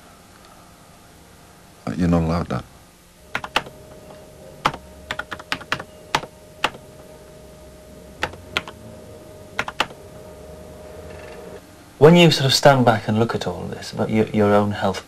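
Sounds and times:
faint steady tone: 0.0s - 13.5s
computer keyboard keystrokes: 3.4s - 3.7s, 4.6s - 6.8s, 9.6s - 9.9s.

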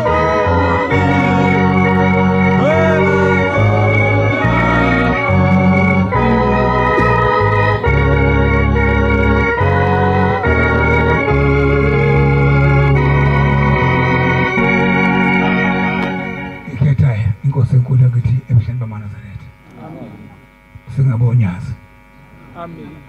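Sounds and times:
strong bass: 0.0s - 16.9s
electronic organ chords: 0.0s - 18.2s.

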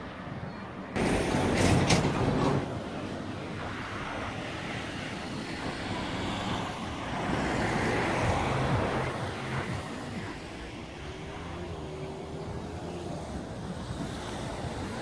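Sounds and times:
cars going by: 0.0s - 15.0s
vehicle passing: 1.0s - 15.0s.

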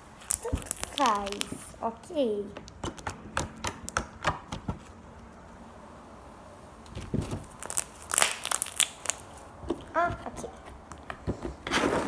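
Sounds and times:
slime clicking and popping: 0.2s - 1.6s, 7.5s - 9.3s.

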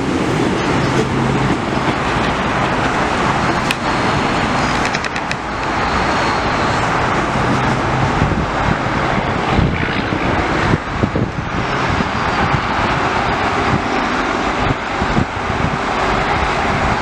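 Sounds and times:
train wheels rumbling on track: 0.0s - 17.0s
sharp wheel clicks: 4.8s - 5.5s.

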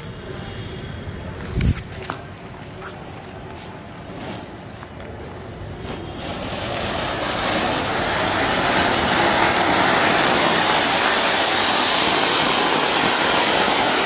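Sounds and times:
firework fountain hissing: 0.0s - 14.0s.

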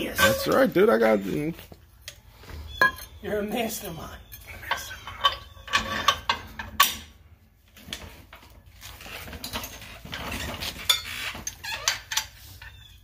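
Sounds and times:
metal tools clinking: 0.0s - 1.0s, 2.8s - 7.0s, 9.0s - 12.8s.

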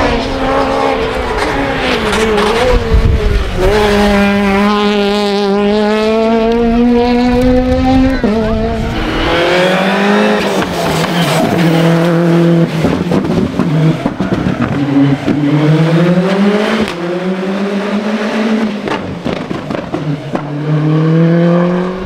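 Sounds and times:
rally car engine revving: 0.0s - 22.0s.

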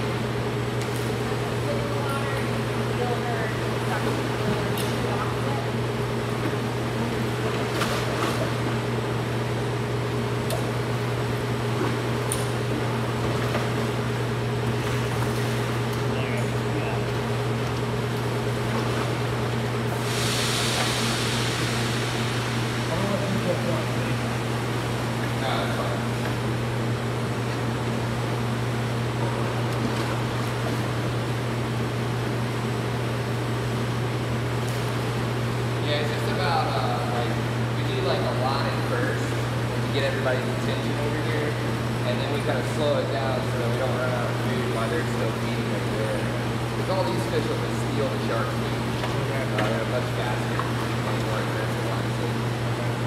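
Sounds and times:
machinery hum: 0.0s - 53.0s
even hiss: 19.9s - 24.1s.

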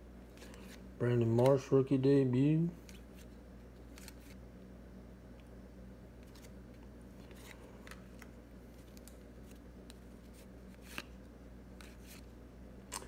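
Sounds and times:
low steady hum: 0.0s - 13.0s
cards flicking and clicking: 0.3s - 1.8s, 2.8s - 4.4s, 6.2s - 13.0s.

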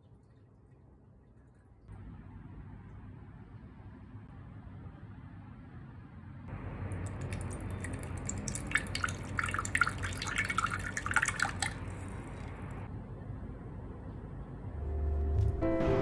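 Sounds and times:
liquid pouring into mug: 7.0s - 12.8s.

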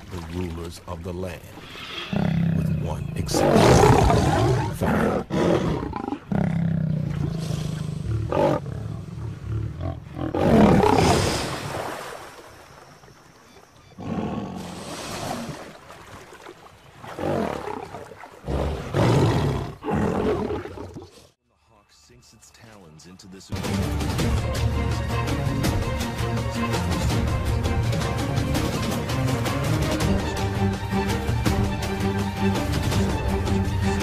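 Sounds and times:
lion growling and roaring: 2.0s - 11.4s, 14.0s - 15.6s, 17.1s - 21.2s.

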